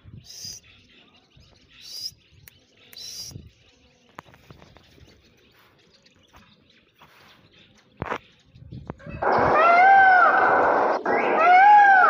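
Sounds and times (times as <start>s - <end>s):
high-pitched bird chirps: 0.1s - 7.4s.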